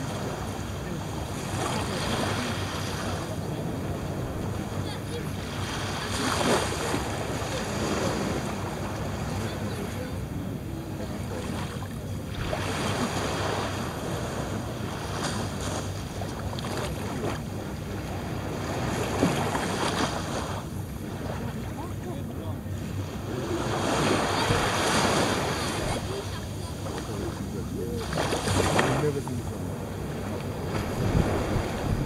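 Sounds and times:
small waves washing up a beach: 0.0s - 32.0s
wind rumble on microphone: 28.2s - 32.0s.

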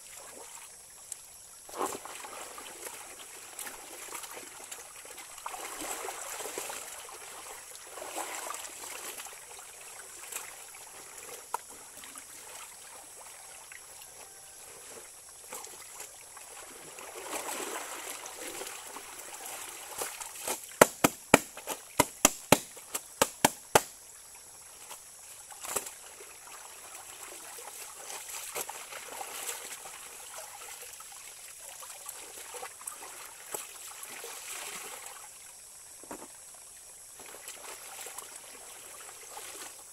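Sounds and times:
stream over pebbles: 0.0s - 39.9s
sharp slaps: 20.8s - 23.9s.

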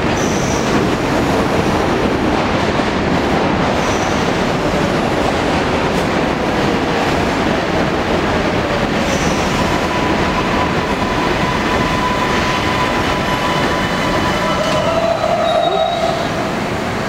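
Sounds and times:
subway cars rumbling: 0.0s - 17.0s
thin high squealing tone: 9.2s - 16.4s.

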